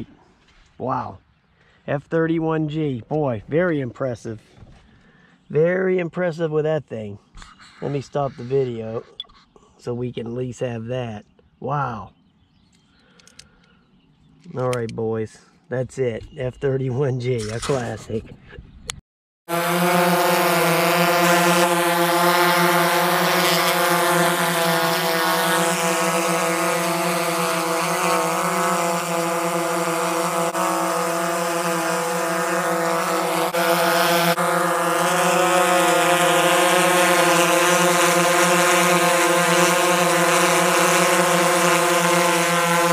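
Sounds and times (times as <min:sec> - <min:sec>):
drone motors buzzing: 0:19.5 - 0:42.9.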